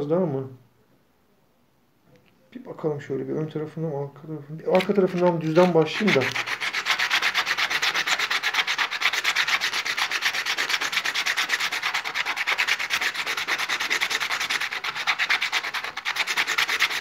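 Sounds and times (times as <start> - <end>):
stone scraping on wet sandpaper: 4.7 - 17.0.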